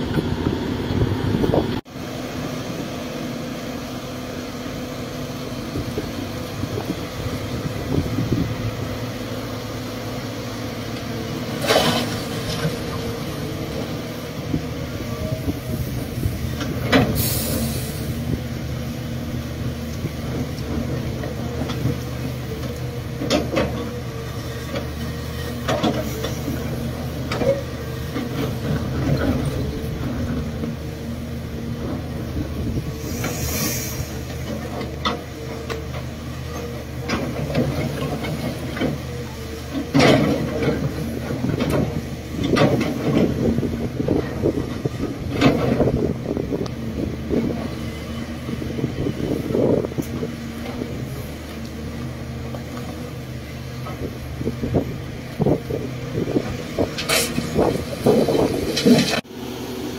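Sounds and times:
excavator diesel engine running: 0:00.0 - 0:59.9
clunks of earth and rock: 0:05.2 - 0:59.3
short bursts of hiss: 0:33.0 - 0:34.3.

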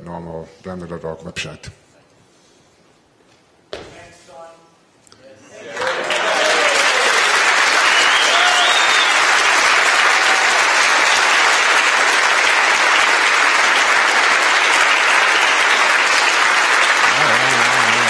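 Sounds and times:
large audience applauding: 0:05.7 - 0:18.0.

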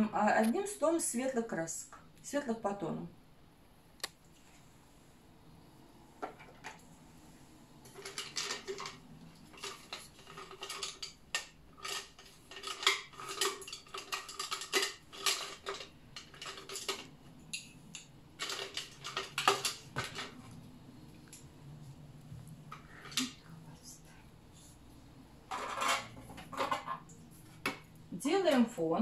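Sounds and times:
paint jars clinking: 0:07.8 - 0:20.4.

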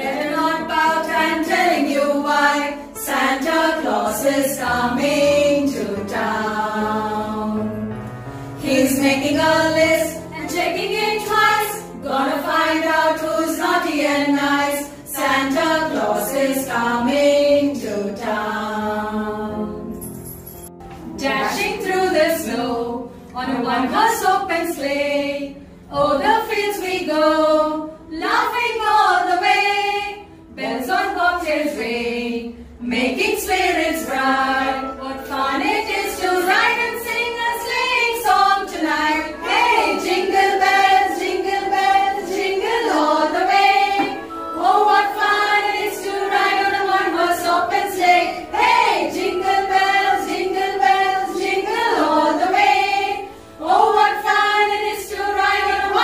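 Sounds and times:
women singing in chorus: 0:00.0 - 0:07.9, 0:08.6 - 0:20.0, 0:21.1 - 0:56.0.

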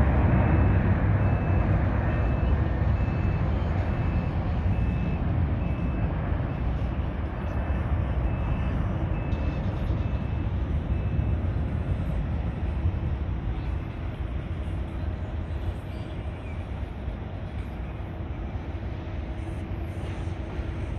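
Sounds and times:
jet engines roaring: 0:00.0 - 0:20.9
faint reversing beeper: 0:00.4 - 0:13.8.

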